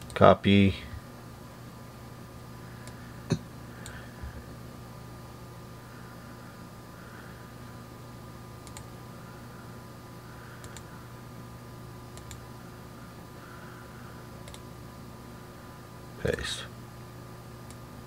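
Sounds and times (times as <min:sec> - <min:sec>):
low electrical hum: 0:00.0 - 0:18.0
computer mouse clicks: 0:08.6 - 0:08.9, 0:10.6 - 0:10.9, 0:12.1 - 0:12.4, 0:14.4 - 0:14.6.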